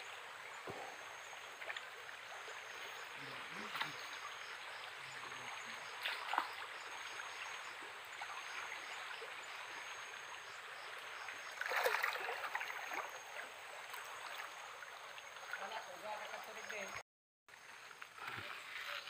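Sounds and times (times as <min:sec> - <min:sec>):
stream water flowing: 0:00.0 - 0:19.0
person wading through water: 0:11.4 - 0:16.9.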